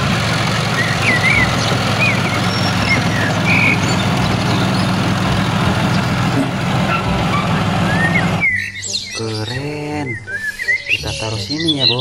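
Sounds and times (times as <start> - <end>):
diesel engine idling: 0.0 - 8.5
birds chirping: 0.0 - 12.0.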